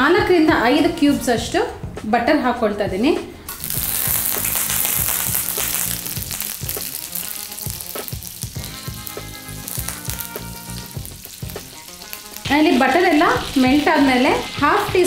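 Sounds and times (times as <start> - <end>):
butter sizzling on griddle: 3.5 - 15.0.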